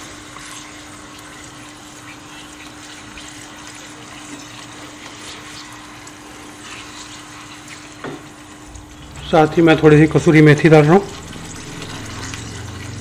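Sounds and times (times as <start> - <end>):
gravy bubbling in a pan: 0.0 - 13.0
spatula stirring: 0.0 - 13.0
low hum: 8.5 - 13.0.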